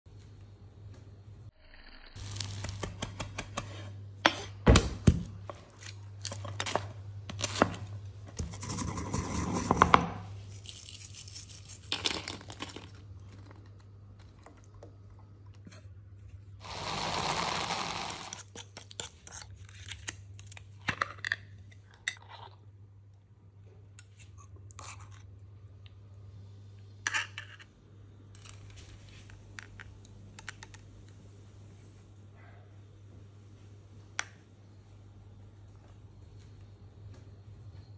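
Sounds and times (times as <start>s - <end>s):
food processor running: 16.6s - 18.4s.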